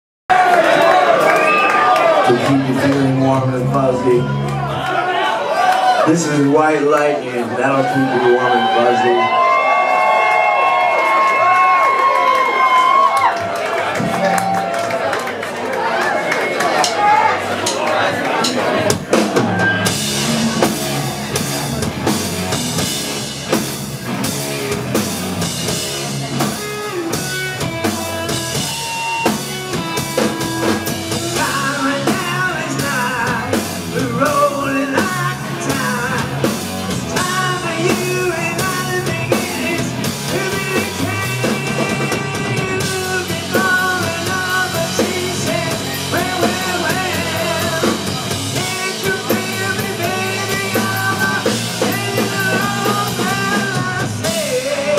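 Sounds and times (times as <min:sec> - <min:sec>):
live rock band playing: 0:00.3 - 0:54.9
man singing: 0:31.1 - 0:54.9.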